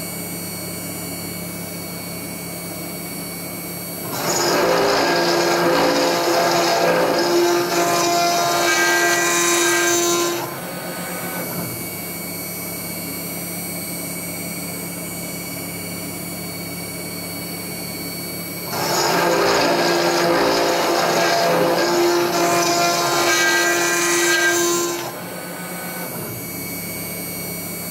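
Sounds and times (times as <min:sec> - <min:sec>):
router spindle milling steel: 0:04.0 - 0:12.0, 0:18.6 - 0:27.4.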